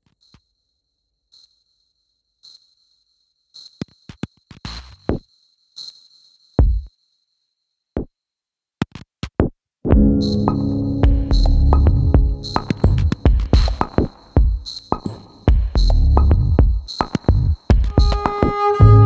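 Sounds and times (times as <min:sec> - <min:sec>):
drum machine thumps: 0:06.6 - 0:06.9, 0:08.8 - 0:19.0
electronic music: 0:09.9 - 0:16.9, 0:17.8 - 0:19.0
loud synthesizer chord and beat: 0:10.0 - 0:14.5.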